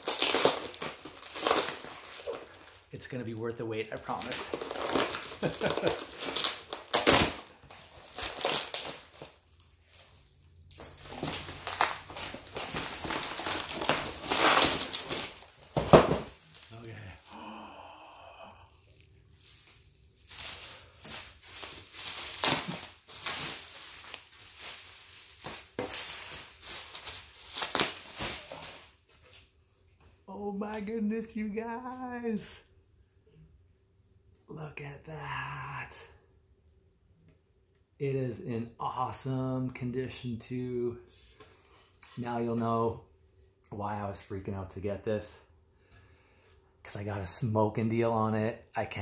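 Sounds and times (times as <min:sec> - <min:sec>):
packaging tearing and crumpling: 0:00.0 - 0:10.1, 0:10.7 - 0:16.8, 0:18.8 - 0:28.9
bubble wrap crinkling: 0:00.0 - 0:29.5.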